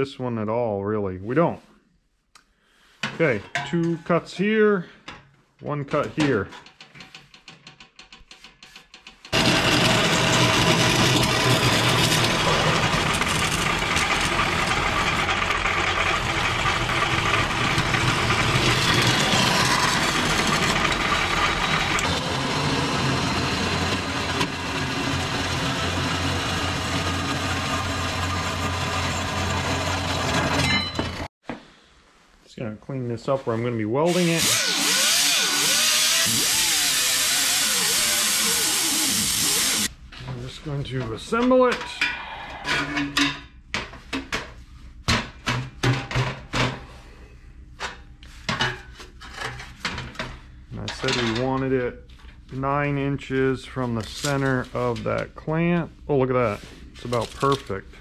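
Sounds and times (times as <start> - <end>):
metal pipes knocking and clanking: 3.0 - 4.5, 5.9 - 9.4
band saw cutting steel pipe: 9.3 - 30.7, 34.1 - 39.9.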